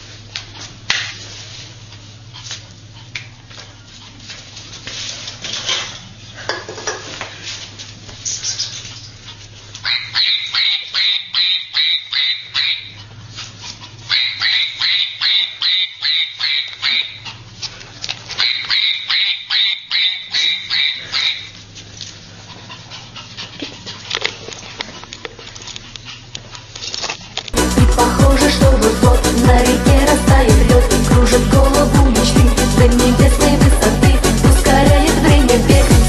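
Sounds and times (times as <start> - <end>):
steady low hum: 0.0 - 36.0
small dog yapping: 9.8 - 13.0, 14.1 - 17.3, 18.4 - 21.5.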